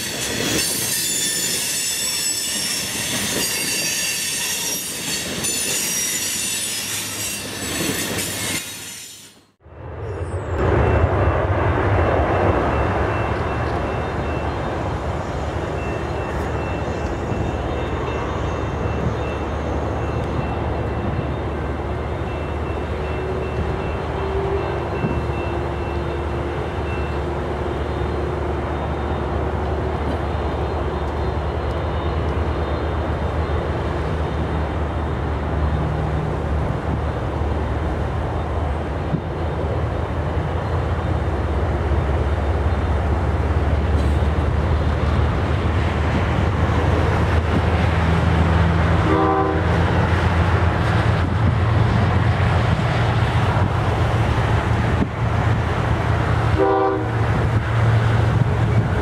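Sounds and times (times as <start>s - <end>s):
train horn note: 49.0s - 49.8s, 56.6s - 57.2s.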